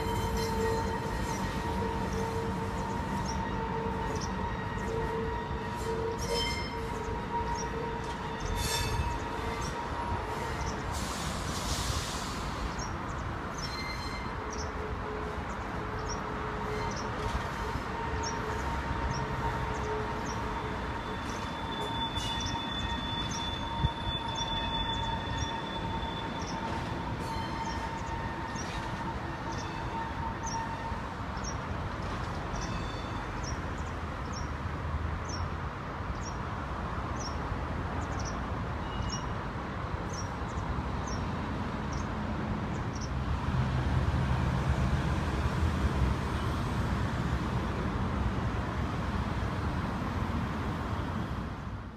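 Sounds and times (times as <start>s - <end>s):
road vehicle engine rumble: 0.0s - 24.4s
high-pitched train tone: 0.0s - 31.6s, 32.5s - 33.7s, 38.6s - 39.5s
metro train rumbling past: 0.0s - 51.9s.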